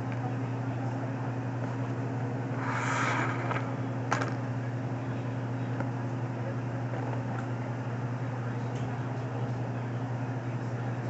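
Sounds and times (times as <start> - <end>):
laundry machines humming: 0.0 - 11.0.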